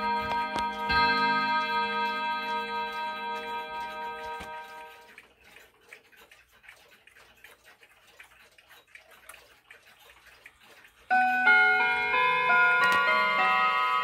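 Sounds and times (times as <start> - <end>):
mantel clock chiming: 0.0 - 5.2, 11.1 - 14.0
faint clock ticking: 0.0 - 14.0.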